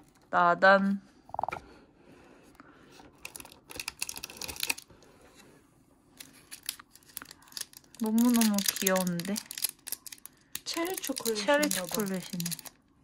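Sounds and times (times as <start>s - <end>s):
plastic wrapper crinkling: 3.2s - 4.9s, 6.2s - 12.9s.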